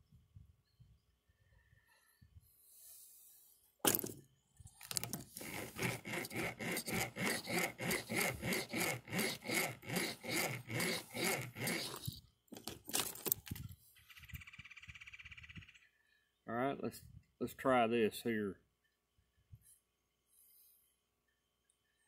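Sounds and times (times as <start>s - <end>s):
steel cable rasping against nail: 4.9s - 12.2s.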